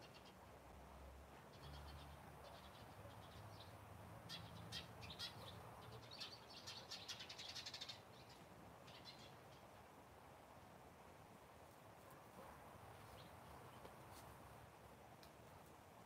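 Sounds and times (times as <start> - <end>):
small birds chirping: 0.0 - 0.5, 1.4 - 9.8, 13.0 - 14.3.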